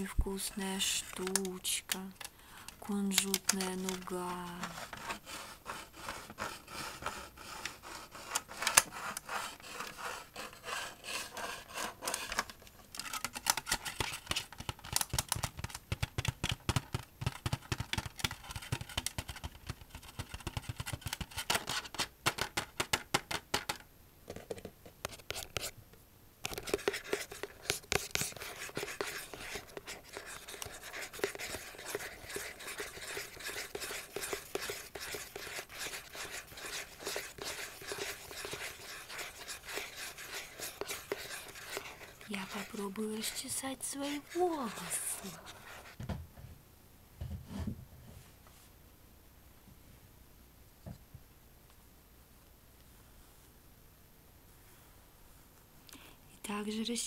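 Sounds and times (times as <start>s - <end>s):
scratching and rubbing on small box: 0.5s - 25.8s, 26.4s - 46.0s.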